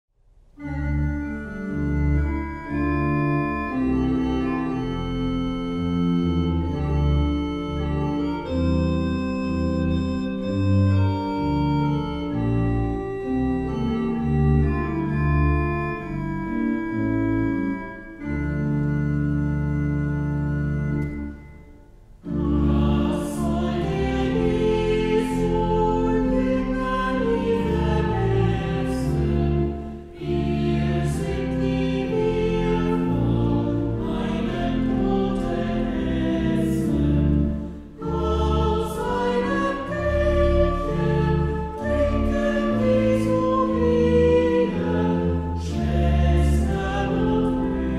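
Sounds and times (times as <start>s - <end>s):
church organ chords: 0.6s - 47.9s
singing with accompaniment: 21.0s - 47.9s.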